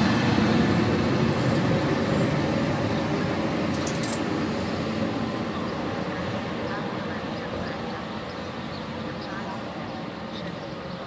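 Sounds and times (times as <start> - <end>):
passenger train rumbling: 0.0 - 11.0.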